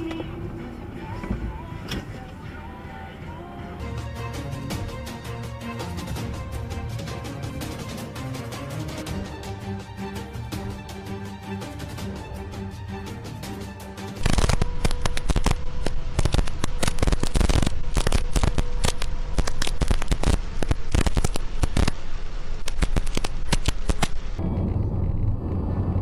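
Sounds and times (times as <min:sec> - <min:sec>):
music: 0:00.0 - 0:17.5
low road rumble: 0:00.0 - 0:26.0
heavy rain on a car: 0:14.5 - 0:24.4.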